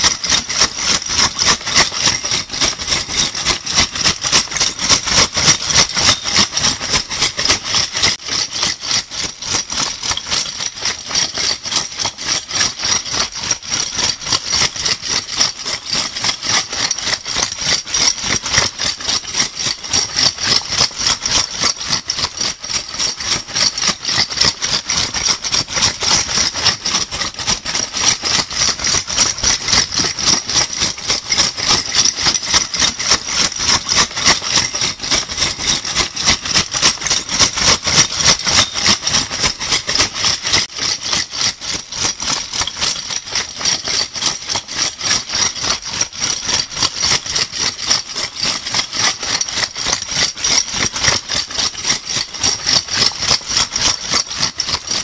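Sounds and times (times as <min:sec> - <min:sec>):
bottle caps clinking rattle: 0:03.9 - 0:08.2, 0:28.6 - 0:45.4.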